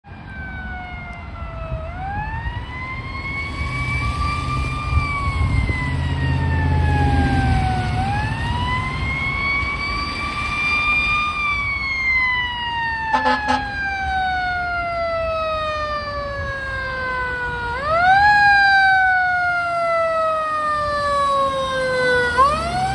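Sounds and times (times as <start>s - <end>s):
fire engine siren wailing: 0.0s - 22.9s.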